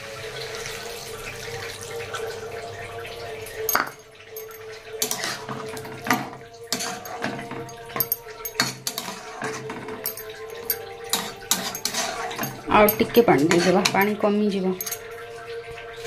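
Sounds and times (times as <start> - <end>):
water pouring into a pan: 0.0 - 16.0
metal spatula scraping a pan: 5.0 - 6.1, 6.7 - 7.7, 8.5 - 10.1, 10.7 - 14.2.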